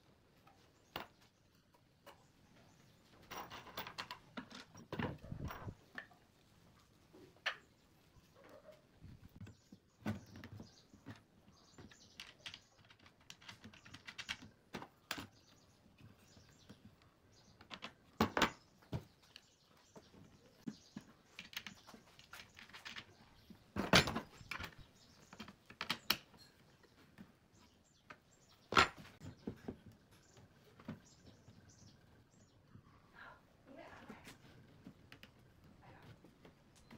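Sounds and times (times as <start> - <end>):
wooden chair slats clicking and knocking: 23.7 - 26.4.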